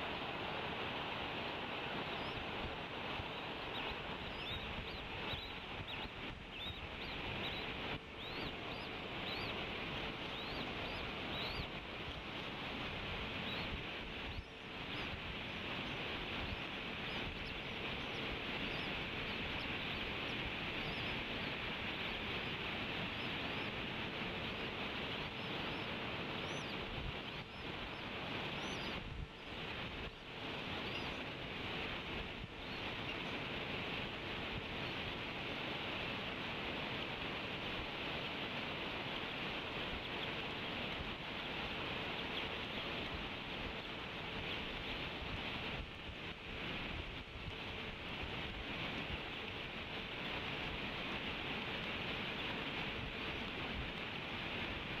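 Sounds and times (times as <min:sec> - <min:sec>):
outdoor hiss: 0:00.0 - 0:55.0
high chirping bird calls: 0:03.2 - 0:11.8, 0:13.4 - 0:15.2, 0:25.3 - 0:29.0.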